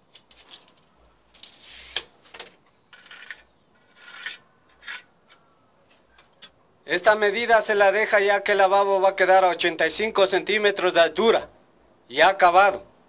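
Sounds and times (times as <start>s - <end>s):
spirit level scraping on concrete: 1.4s - 2.1s, 2.9s - 6.2s.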